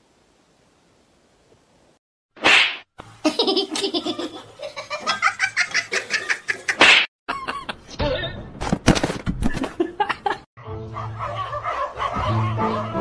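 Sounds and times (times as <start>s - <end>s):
person laughing: 3.2s - 8.0s, 9.4s - 10.5s.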